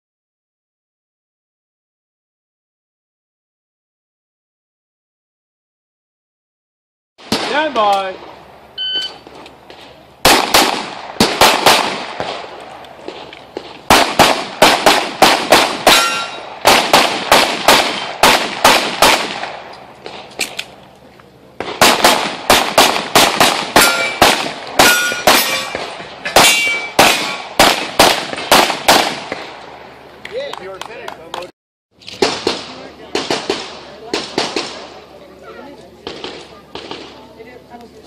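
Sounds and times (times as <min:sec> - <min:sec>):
rapid pistol fire: 0:07.2 - 0:08.2, 0:10.2 - 0:20.3, 0:21.6 - 0:29.6, 0:32.2 - 0:35.0, 0:36.0 - 0:37.2
steel plates ringing when hit: 0:15.9 - 0:16.5, 0:23.8 - 0:24.2, 0:24.8 - 0:27.4.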